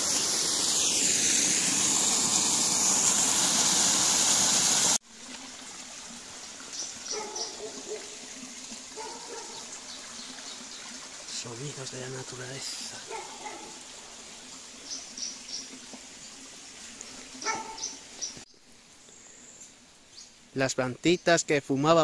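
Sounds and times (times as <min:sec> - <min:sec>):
waterfall rushing: 0:00.0 - 0:05.0
stream trickling: 0:00.0 - 0:22.0.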